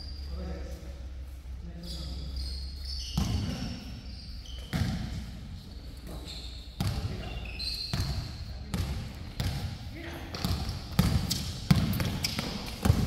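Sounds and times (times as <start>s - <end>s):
high-pitched shoe squeaks: 1.8s - 4.8s, 5.7s - 8.5s
basketball bouncing on gym floor: 3.0s - 13.0s.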